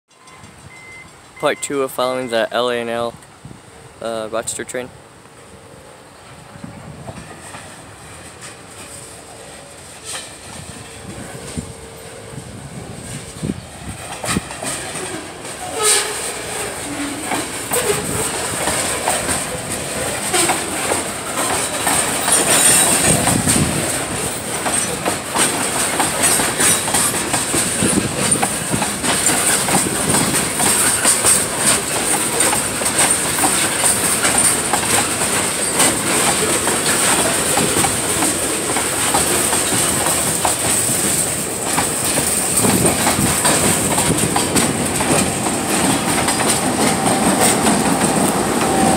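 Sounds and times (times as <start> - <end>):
train wheels clicking over rail joints: 7.0 - 12.1, 13.0 - 48.9
high wheel squeal: 21.6 - 23.6.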